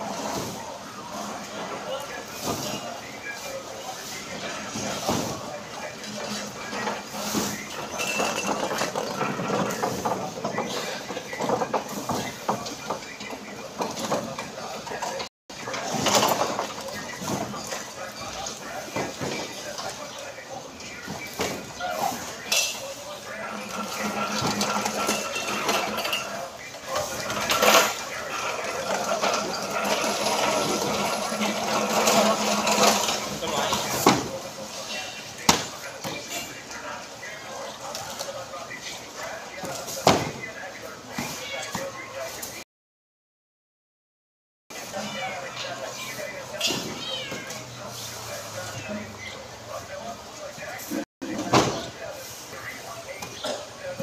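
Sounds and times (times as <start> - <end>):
pallet jack clinking and clattering: 4.3 - 20.4, 21.0 - 36.7
cardboard cartons knocking and thudding: 40.0 - 40.4.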